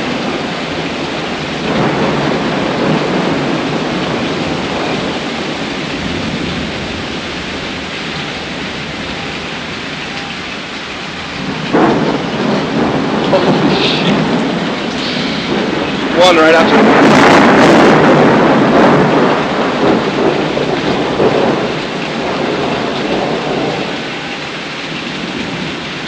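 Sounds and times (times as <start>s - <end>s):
heavy rain pouring: 0.0s - 26.0s
thunder rumbling: 0.0s - 26.0s.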